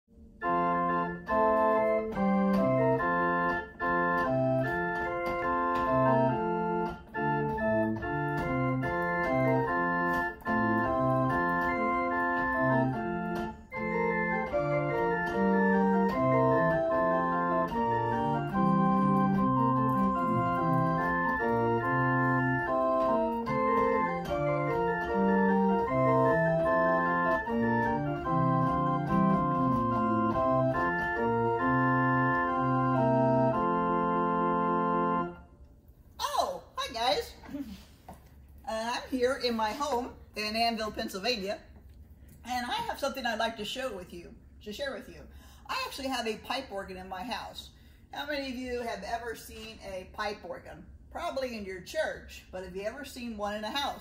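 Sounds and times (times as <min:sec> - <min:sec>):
pipe organ playing: 0:00.4 - 0:35.6.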